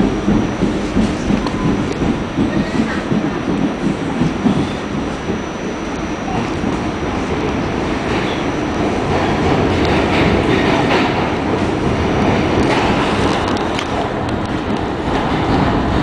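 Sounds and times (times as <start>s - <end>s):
subway car rumble: 0.0s - 16.0s.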